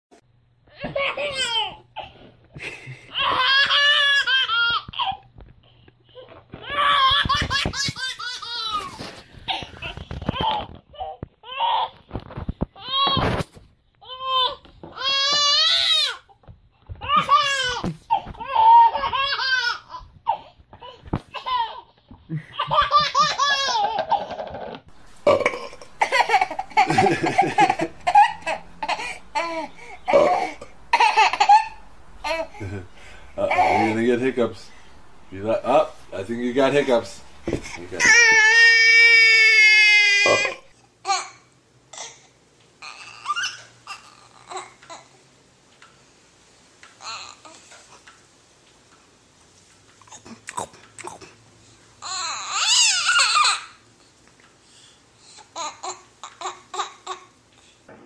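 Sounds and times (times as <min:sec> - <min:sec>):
baby laughing: 0:00.8 - 0:01.8, 0:02.9 - 0:05.2, 0:06.6 - 0:11.8, 0:21.3 - 0:24.5, 0:25.4 - 0:41.3.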